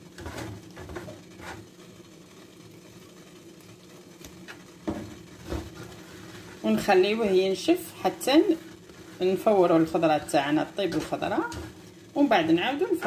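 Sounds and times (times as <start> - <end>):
faint steady hum: 0.0 - 13.0
grains swishing in a wooden bowl: 4.8 - 13.0.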